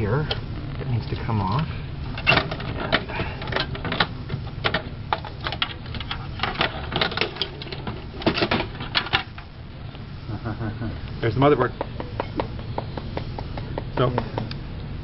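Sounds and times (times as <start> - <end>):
motherboard lifted from metal chassis: 2.1 - 9.5.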